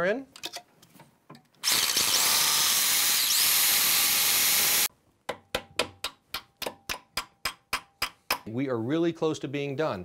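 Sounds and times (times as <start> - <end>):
hammer drill boring: 1.6 - 4.9.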